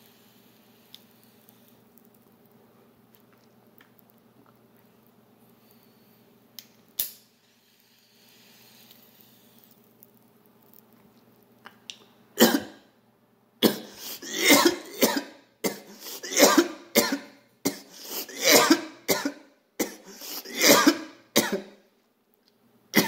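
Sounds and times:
man coughing: 0:13.6 - 0:21.7.

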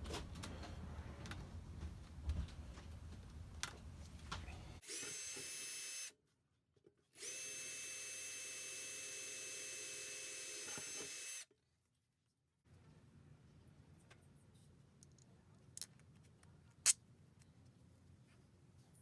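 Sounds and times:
power drill boring through metal: 0:04.8 - 0:06.1, 0:07.2 - 0:11.4.

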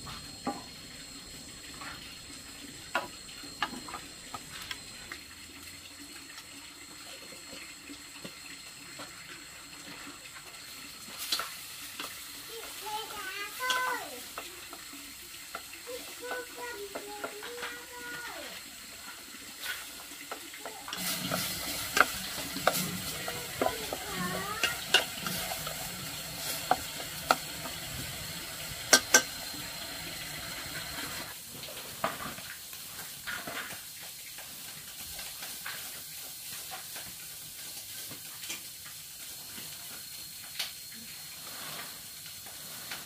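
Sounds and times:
steady sizzling hiss: 0:00.0 - 0:43.0
utensil clinking against pot: 0:20.9 - 0:25.9, 0:28.9 - 0:29.4.

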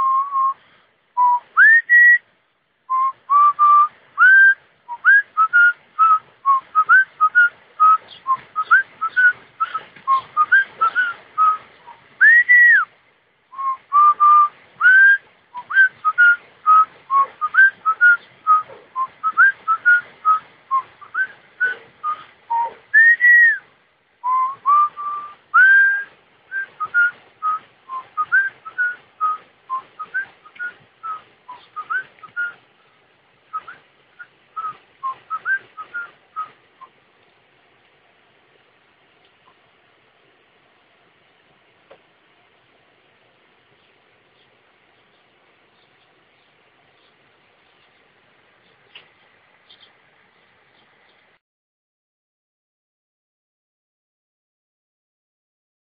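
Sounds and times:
person whistling a lively melody: 0:00.0 - 0:00.6, 0:01.2 - 0:02.2, 0:02.9 - 0:12.9, 0:13.6 - 0:32.6, 0:33.5 - 0:36.9.

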